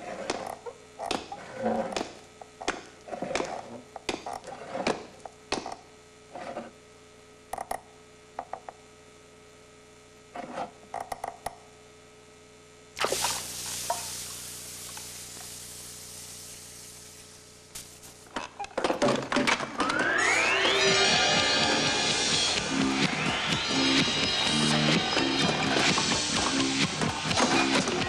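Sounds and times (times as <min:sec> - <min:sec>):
steady electrical hum: 0:00.0 - 0:19.4
sudden loud hiss: 0:13.0 - 0:18.4.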